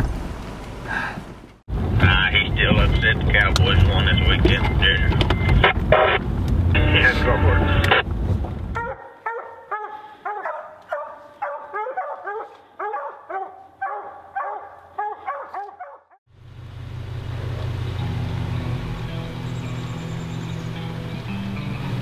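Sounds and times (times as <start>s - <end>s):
low vehicle engine rumble: 0.0s - 9.0s, 16.3s - 22.0s
hound barking: 8.8s - 16.2s.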